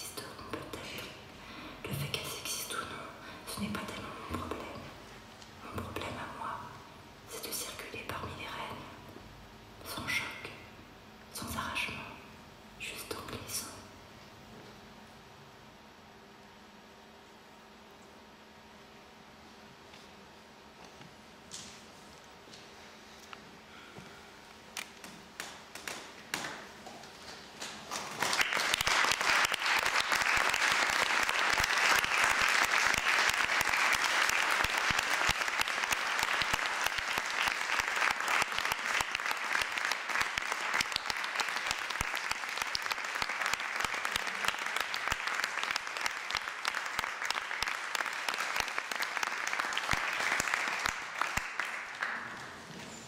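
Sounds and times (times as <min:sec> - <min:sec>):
audience applause: 0:27.9 - 0:52.5.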